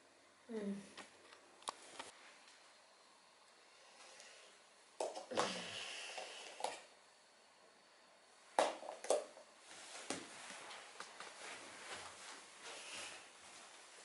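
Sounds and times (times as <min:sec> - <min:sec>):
rustling on a rug: 0:09.6 - 0:14.0.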